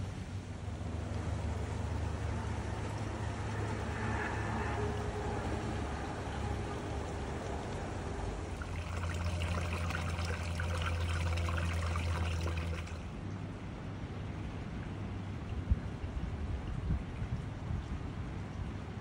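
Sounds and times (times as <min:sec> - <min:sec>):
water trickling into pond: 0:00.0 - 0:19.0.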